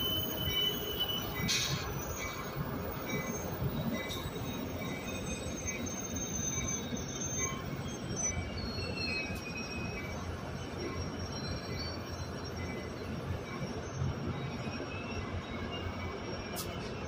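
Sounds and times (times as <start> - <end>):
thin high wheel squeals: 0.0 - 17.0
train wheels rumbling on rail: 0.0 - 17.0.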